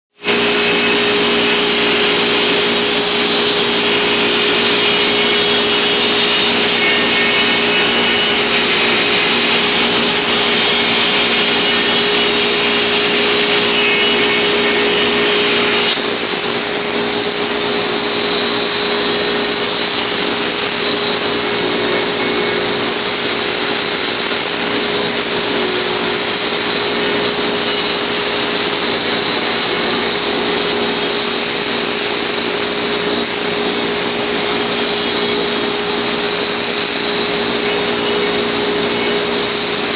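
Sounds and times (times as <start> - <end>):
high steady whine: 0.1 - 39.9
dust extraction vacuum: 0.2 - 39.9
router cutting wood: 0.2 - 39.9.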